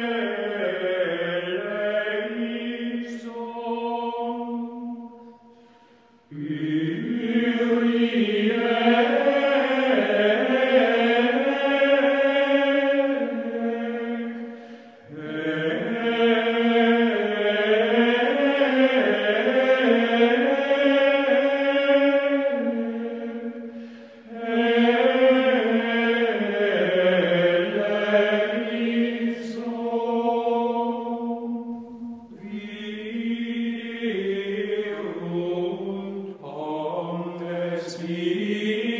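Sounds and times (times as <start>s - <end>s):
slow vocal chant: 0.0s - 38.9s.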